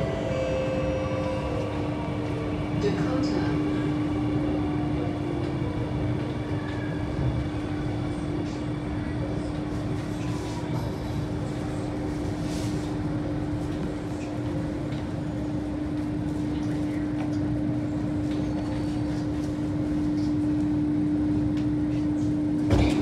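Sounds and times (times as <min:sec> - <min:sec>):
train electrical hum: 0:00.0 - 0:23.0.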